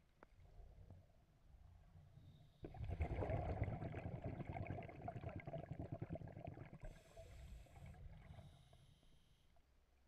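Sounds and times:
air bubbling underwater: 2.7s - 6.8s.

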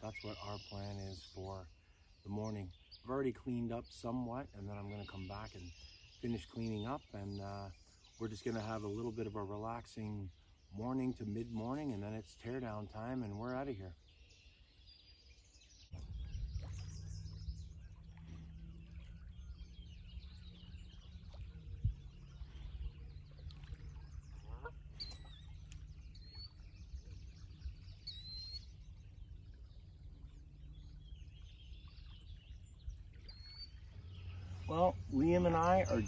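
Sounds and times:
birds chirping: 0.0s - 36.0s
low rumble: 15.9s - 36.0s.

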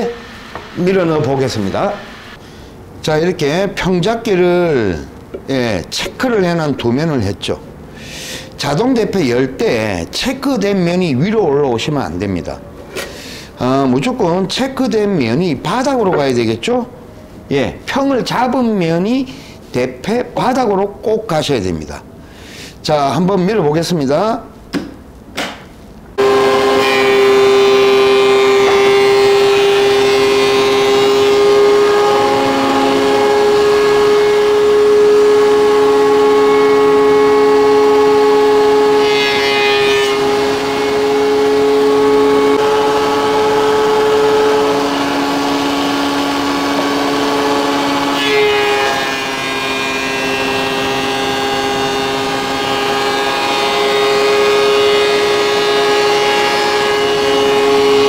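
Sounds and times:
thickness planer whining: 0.0s - 2.4s, 26.2s - 58.0s.

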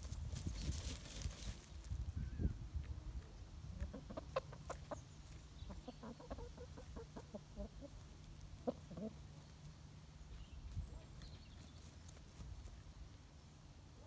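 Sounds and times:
chickens clucking softly: 2.3s - 9.8s.

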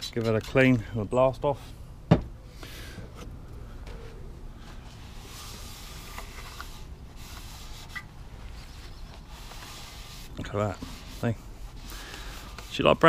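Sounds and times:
rag scrubbing plastic: 5.0s - 13.0s.

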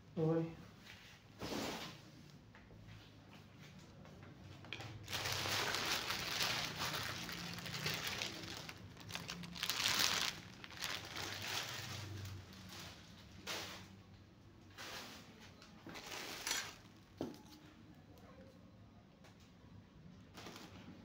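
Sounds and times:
plastic bag crinkling: 5.0s - 13.2s, 15.9s - 17.0s.

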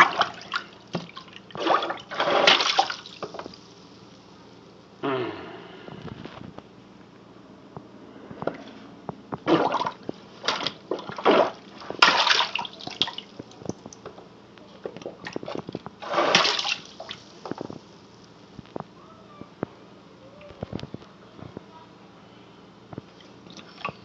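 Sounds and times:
plunger sloshing in sink water: 0.0s - 3.6s, 9.4s - 13.9s, 14.8s - 17.7s
small knocks and splashes: 0.0s - 3.6s, 9.4s - 17.9s.

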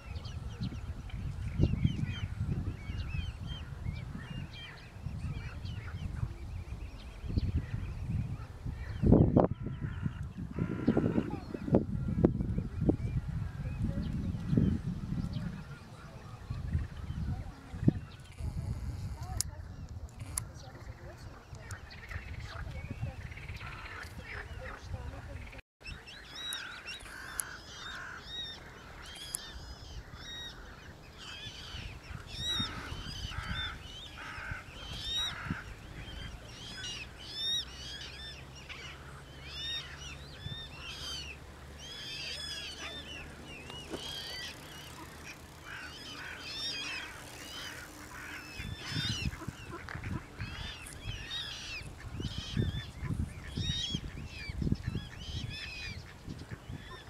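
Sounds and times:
cygnets peeping: 0.0s - 57.0s.

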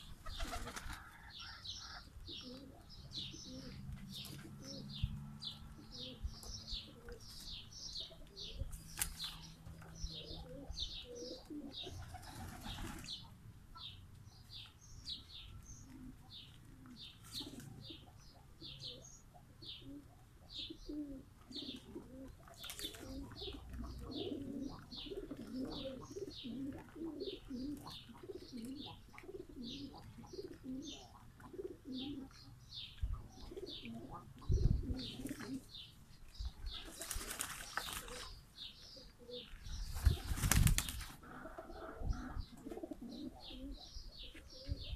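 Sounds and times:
pigeons cooing: 0.0s - 13.3s, 15.8s - 36.0s, 36.6s - 44.9s
small bird chirping: 1.4s - 41.0s
wings flapping and water splashing: 37.0s - 38.2s, 40.2s - 41.0s.

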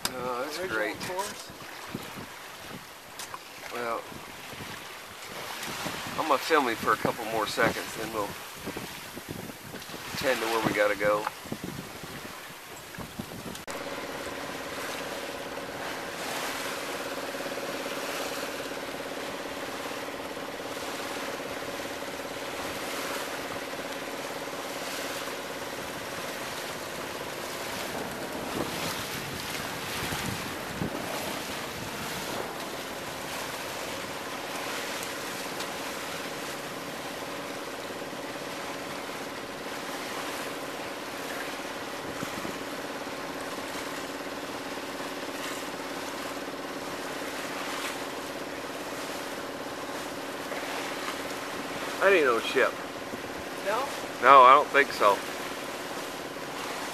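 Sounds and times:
wind buffeting microphone: 0.0s - 3.0s, 4.0s - 13.7s, 27.5s - 34.2s, 42.0s - 42.7s
water splashing along boat hull: 0.0s - 56.9s.

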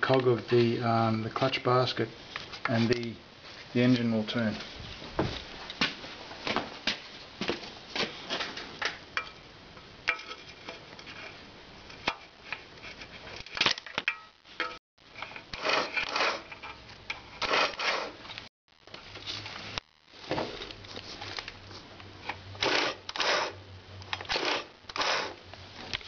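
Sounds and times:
microphone handling noise: 4.6s - 5.7s.

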